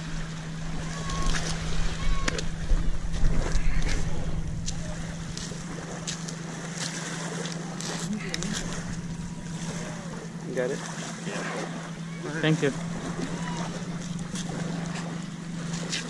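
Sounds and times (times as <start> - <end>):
steady low hum: 0.0 - 16.0
wind buffeting microphone: 0.6 - 6.2.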